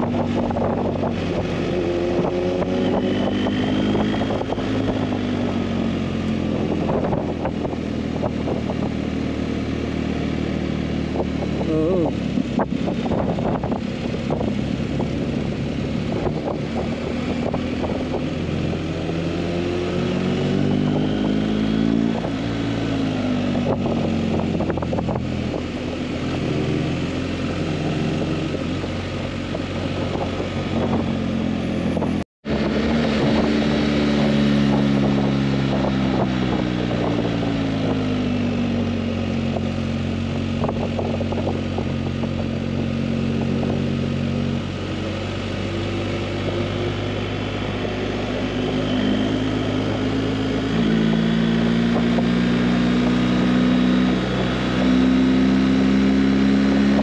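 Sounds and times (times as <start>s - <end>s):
motorcycle engine running: 0.0s - 57.0s
wind noise: 0.0s - 57.0s.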